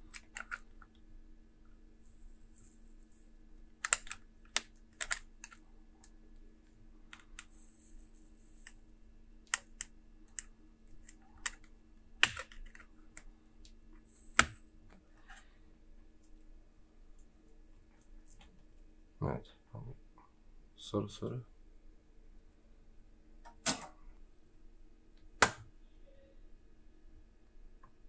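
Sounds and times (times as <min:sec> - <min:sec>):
faint steady hum: 0:00.0 - 0:28.0
sharp plastic clicks and snaps: 0:03.8 - 0:05.6.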